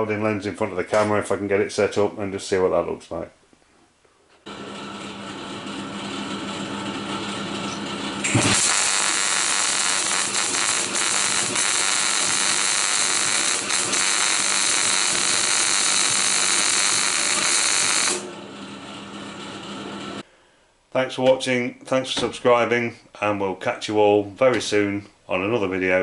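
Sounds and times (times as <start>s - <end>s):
welder arc crackling: 7.7s - 18.3s.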